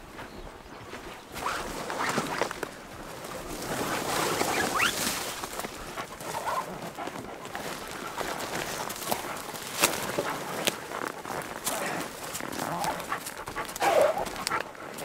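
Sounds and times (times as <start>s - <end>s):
leaves rustling and swishing: 1.3s - 6.6s
footsteps scuffing on trail: 4.9s - 15.0s.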